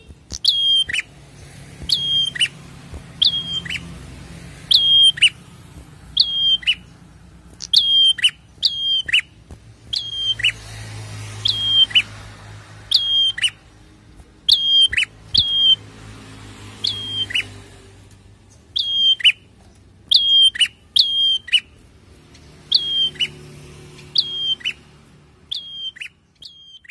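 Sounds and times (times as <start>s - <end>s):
bird calling: 0.0s - 10.6s, 11.4s - 12.2s, 12.9s - 13.7s, 14.4s - 15.8s, 16.8s - 17.6s, 18.6s - 21.8s, 22.6s - 24.8s, 25.5s - 26.9s.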